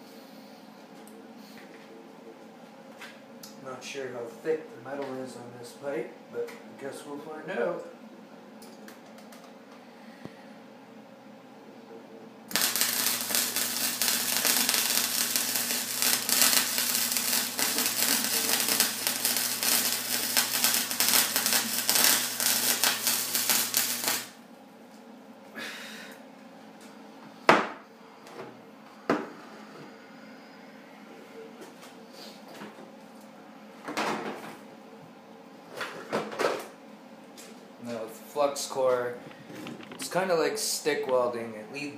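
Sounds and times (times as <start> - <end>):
welder arc crackling: 12.5 - 24.4.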